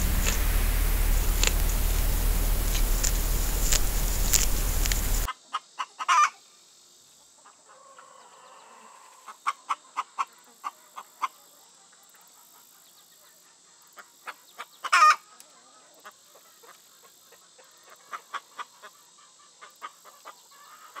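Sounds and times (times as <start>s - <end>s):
bird clucking calls: 0.0s - 5.3s
loud steady hiss: 0.0s - 5.3s.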